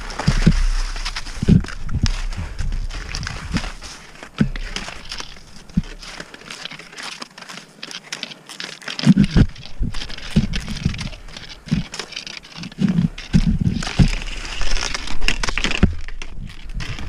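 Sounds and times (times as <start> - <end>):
dull thumps: 0.0 - 6.3, 9.1 - 12.1
skis scraping over snow: 0.0 - 17.0
ski pole tips clicking: 0.1 - 17.0.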